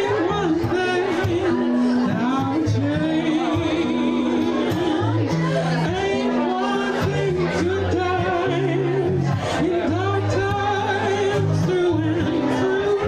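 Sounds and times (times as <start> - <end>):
acoustic guitar: 0.0 - 13.0
woman singing: 0.0 - 13.0.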